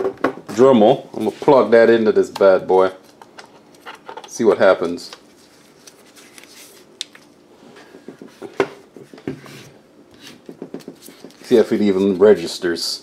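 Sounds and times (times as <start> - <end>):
objects knocking on a desk: 0.0 - 0.5, 7.9 - 9.4, 10.4 - 11.4.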